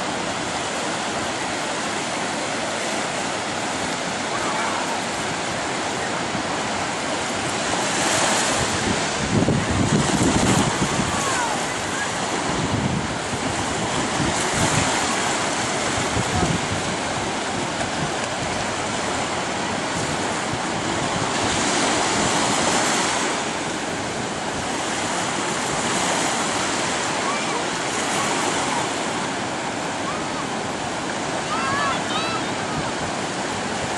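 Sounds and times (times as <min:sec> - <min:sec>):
ocean surf breaking: 0:00.0 - 0:33.9
wind gusting on microphone: 0:00.0 - 0:33.9.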